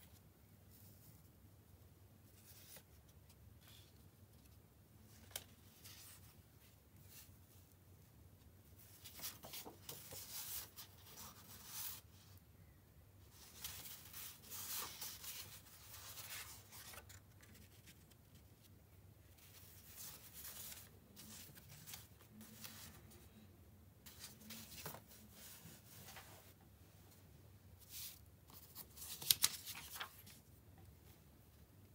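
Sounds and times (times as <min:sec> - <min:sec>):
paper rustling and sliding: 0:08.8 - 0:12.1, 0:13.3 - 0:18.4, 0:19.4 - 0:23.2, 0:24.1 - 0:26.6, 0:27.8 - 0:30.4.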